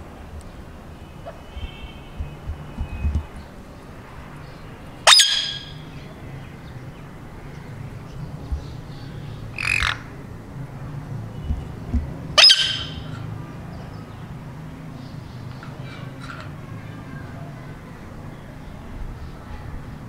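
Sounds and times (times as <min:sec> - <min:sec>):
parrot squawking: 0:05.0 - 0:05.8, 0:09.5 - 0:10.1, 0:12.4 - 0:13.2.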